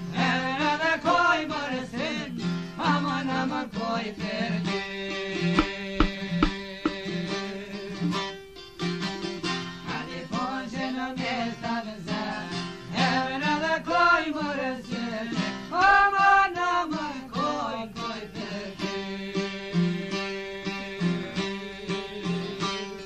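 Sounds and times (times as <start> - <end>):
plucked lutes: 5.5 - 7.4.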